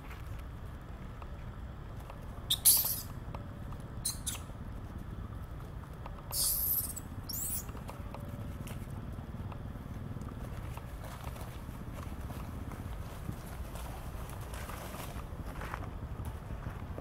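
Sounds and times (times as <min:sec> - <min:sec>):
low background rumble: 0:00.0 - 0:17.0
baby monkey high squeaks: 0:02.5 - 0:03.2, 0:04.0 - 0:04.5, 0:06.3 - 0:07.8.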